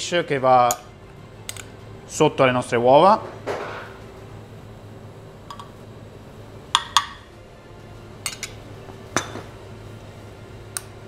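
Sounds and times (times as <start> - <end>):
low steady hum: 0.0 - 11.0
metal spoon clinking on dishes: 8.2 - 8.6.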